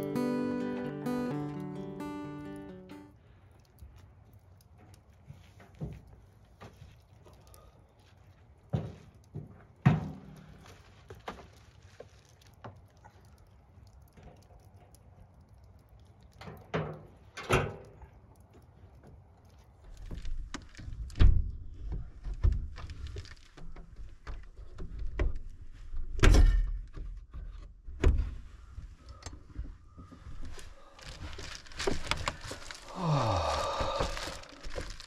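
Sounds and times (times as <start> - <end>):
rustling and handling rumble: 26.8 - 35.0.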